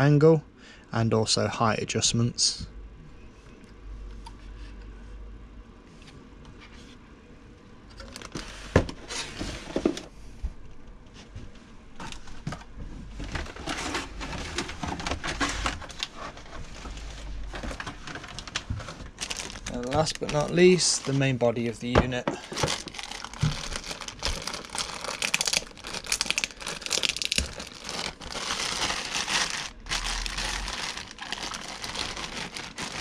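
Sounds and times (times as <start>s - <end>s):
cardboard rustling: 13.1s - 33.0s
plastic wrapping crinkling: 13.4s - 33.0s.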